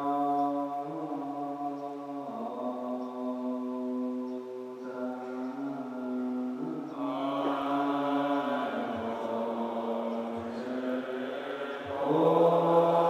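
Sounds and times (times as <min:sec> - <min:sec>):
monks chanting in unison: 0:00.0 - 0:13.0.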